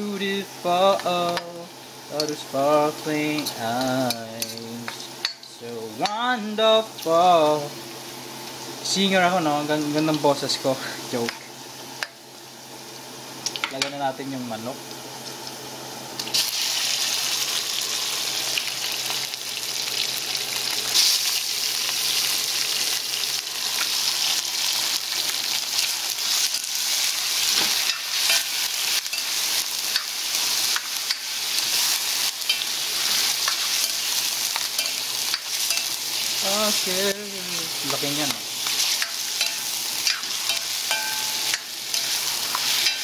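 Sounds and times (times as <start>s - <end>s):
chicken sizzling in hot oil: 0.0s - 43.0s.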